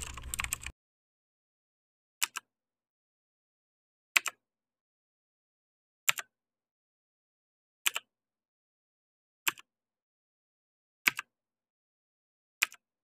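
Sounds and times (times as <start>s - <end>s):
keyboard keys clicking: 0.0s - 0.7s.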